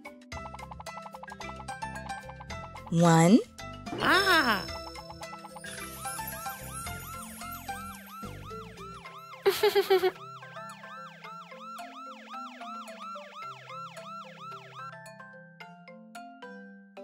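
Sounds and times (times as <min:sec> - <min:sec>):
cartoon siren wail: 0:06.0 - 0:15.0.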